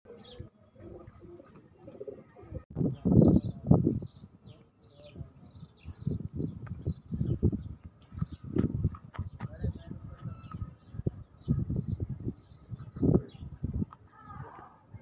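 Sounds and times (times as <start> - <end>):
birds chirping: 0.1 - 15.0
low bird calls: 0.1 - 15.0.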